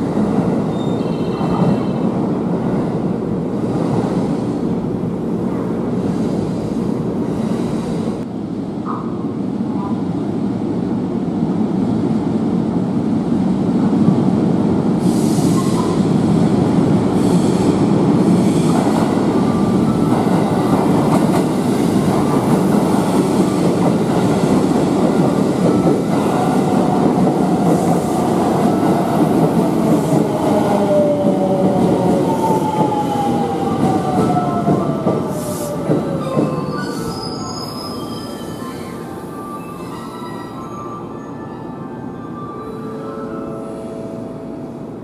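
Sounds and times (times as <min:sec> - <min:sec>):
train wheels rumbling on rail: 0:00.0 - 0:40.6
train wheel squeal: 0:00.7 - 0:02.0, 0:35.5 - 0:43.5.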